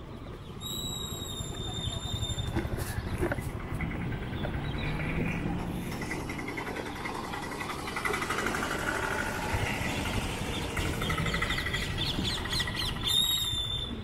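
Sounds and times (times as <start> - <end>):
birds chirping trills: 0.0 - 14.0
vehicle engine running: 3.2 - 13.1.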